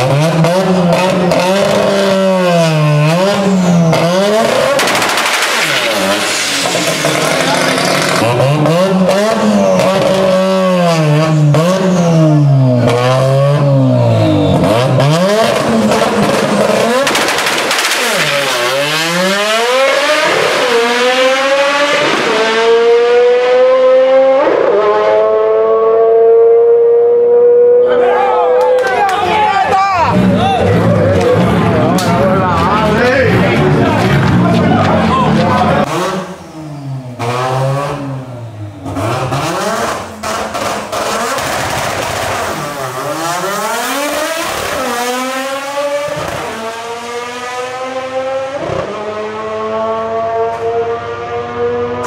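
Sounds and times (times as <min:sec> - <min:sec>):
drag car accelerating hard: 0:00.0 - 0:29.0, 0:29.6 - 0:52.0
harsh rapid engine crackle: 0:04.5 - 0:08.4, 0:40.2 - 0:45.4.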